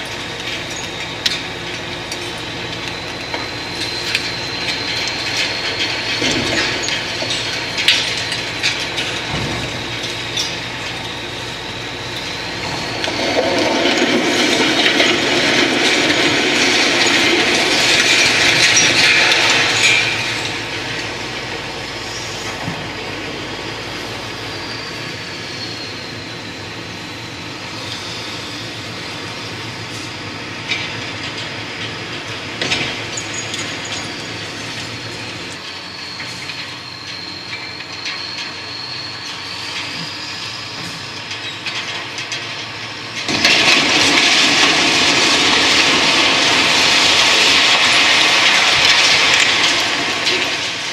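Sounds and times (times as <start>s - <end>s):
building collapsing crash: 12.5s - 20.6s, 43.3s - 50.9s
rubble clattering: 43.3s - 50.9s.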